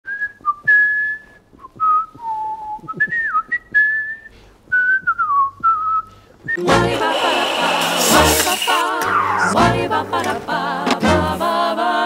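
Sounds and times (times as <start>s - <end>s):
man whistling a tune: 0.1s - 6.7s.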